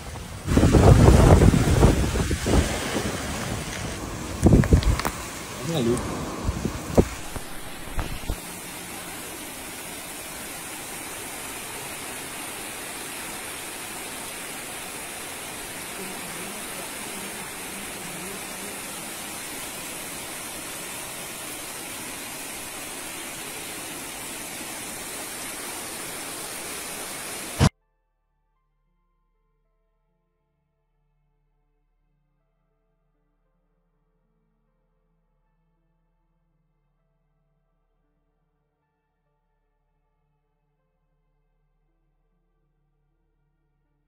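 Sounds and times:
wind gusting on microphone: 0.0 - 8.4
floodwater rushing: 0.0 - 27.7.

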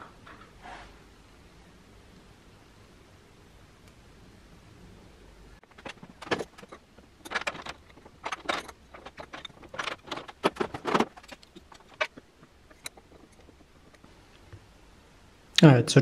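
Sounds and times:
metallic clinks and knocks: 5.6 - 14.0.

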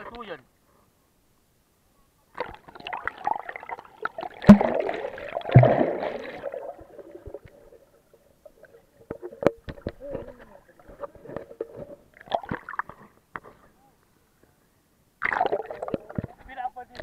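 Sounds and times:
water sloshing underwater: 2.3 - 13.6, 15.2 - 16.5.

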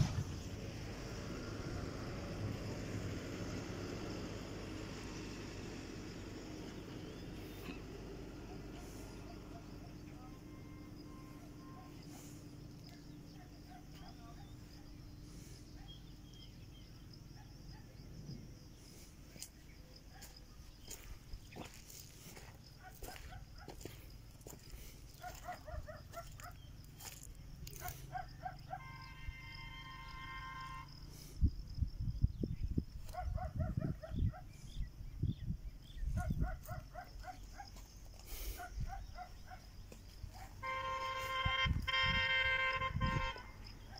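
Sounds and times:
insect drone: 0.0 - 43.9
low wind rumble: 31.3 - 37.1.

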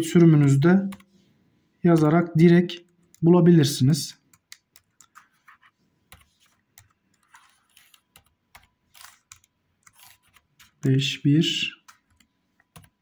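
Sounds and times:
typing on keyboard: 4.2 - 10.8, 11.8 - 13.0.

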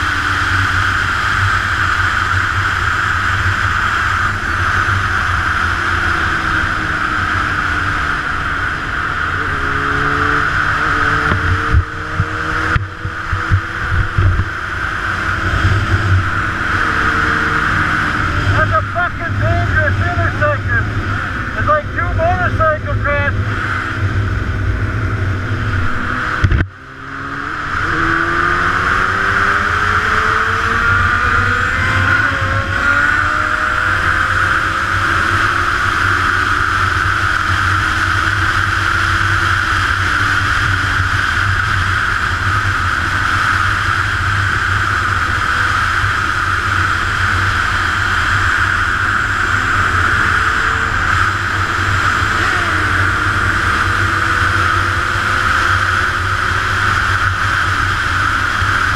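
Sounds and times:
motorcycle engine accelerating: 0.0 - 58.9
wind noise on microphone: 10.4 - 18.7, 23.4 - 58.9.

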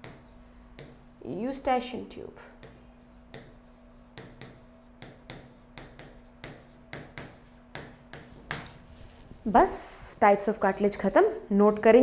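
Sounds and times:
chalk tapping and scraping on blackboard: 0.0 - 1.1, 2.5 - 9.3
faint steady hum: 0.0 - 12.0.

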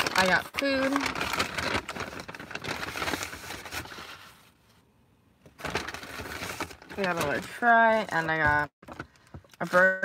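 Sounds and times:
paper bag rustling: 0.0 - 4.6, 5.6 - 8.7.

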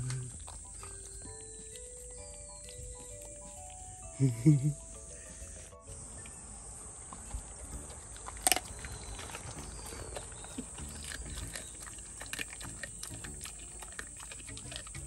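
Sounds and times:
pet chewing and crunching: 0.0 - 15.0
wet clicks: 7.0 - 15.0.

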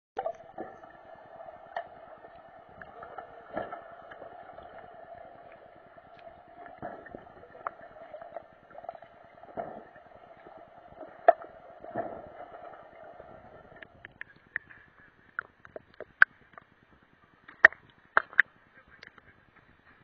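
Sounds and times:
muffled underwater hum: 0.2 - 20.0.

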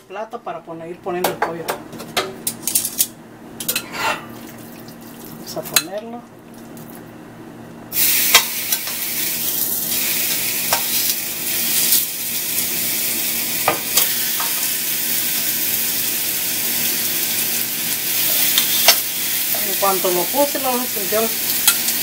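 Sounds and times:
chicken sizzling on grill pan: 7.9 - 22.0.

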